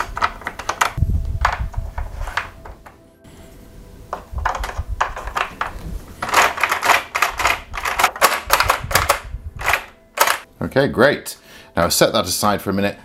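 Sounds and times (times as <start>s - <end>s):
plastic toy parts clicking: 0.0s - 2.5s, 4.2s - 10.4s.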